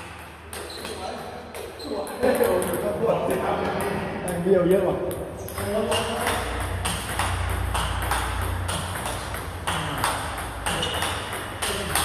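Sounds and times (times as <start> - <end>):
table tennis ball clicks: 5.1 - 12.0.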